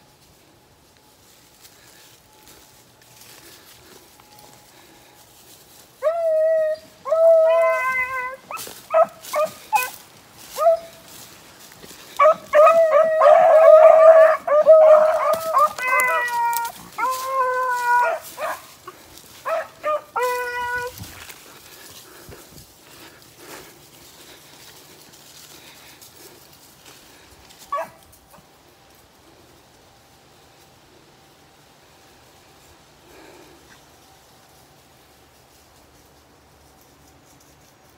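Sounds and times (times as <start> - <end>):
hounds baying: 6.0 - 26.5, 27.1 - 28.5.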